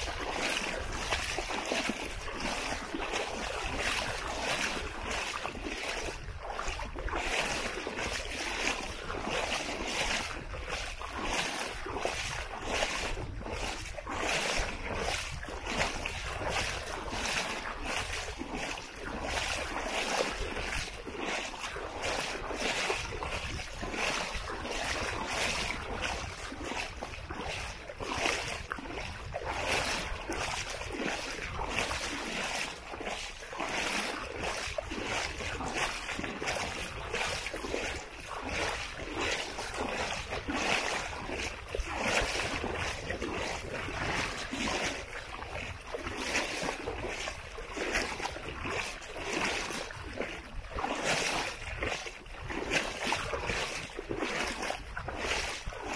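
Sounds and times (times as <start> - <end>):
gentle surf: 0.0 - 41.9
wind: 0.0 - 55.9.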